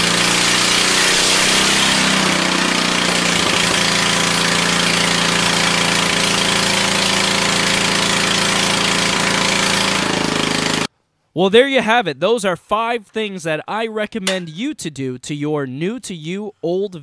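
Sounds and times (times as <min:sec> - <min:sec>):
engine running with loud open exhaust: 0:00.0 - 0:10.9.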